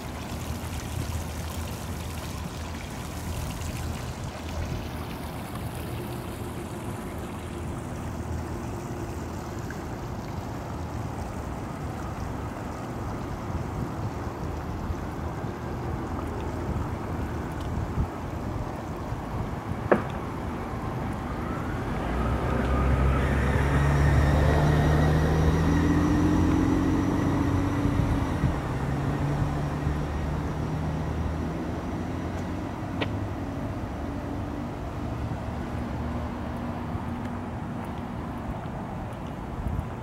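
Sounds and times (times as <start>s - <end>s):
vehicle engine passing by: 21.6s - 32.6s.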